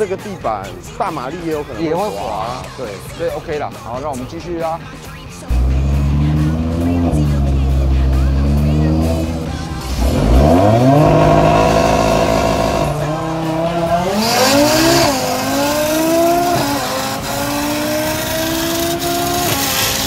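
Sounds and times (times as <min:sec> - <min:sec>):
gear upshifts: 0:05.5 - 0:20.0
racing car engine accelerating: 0:05.5 - 0:20.0.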